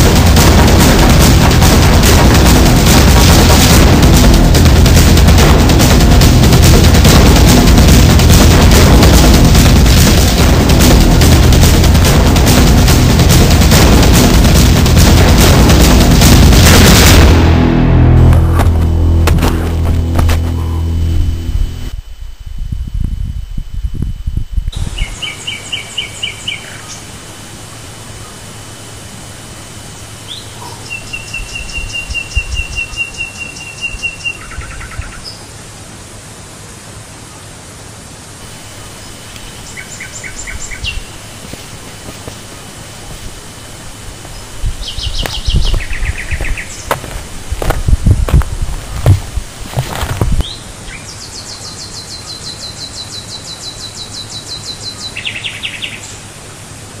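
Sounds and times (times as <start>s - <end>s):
low thuds: 0.0s - 22.0s, 45.2s - 50.4s
steady background hiss: 0.0s - 57.0s
birds chirping: 20.5s - 21.9s, 24.8s - 35.4s, 38.5s - 47.5s, 49.8s - 56.2s
bird trilling: 20.6s - 20.9s.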